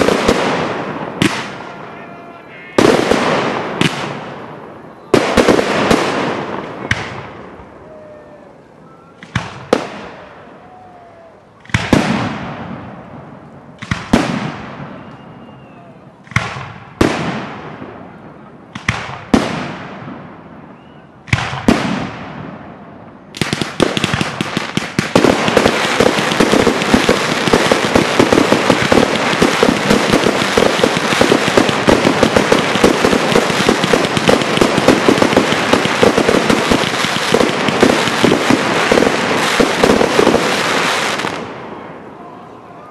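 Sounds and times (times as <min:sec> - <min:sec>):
firework crackling pops: 0:00.0 - 0:01.8, 0:02.8 - 0:07.4, 0:09.2 - 0:10.2, 0:11.6 - 0:12.9, 0:13.8 - 0:15.2, 0:16.2 - 0:17.6, 0:18.7 - 0:20.0, 0:21.3 - 0:22.5, 0:23.4 - 0:41.6.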